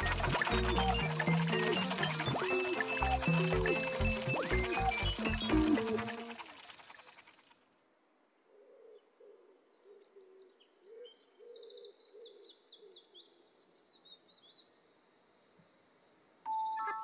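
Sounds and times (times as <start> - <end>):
birds chirping and trilling: 0.0 - 6.7.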